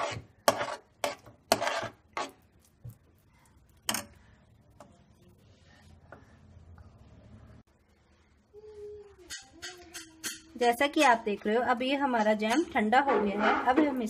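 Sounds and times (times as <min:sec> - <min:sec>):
spoon clinking against a pan: 0:09.3 - 0:10.6.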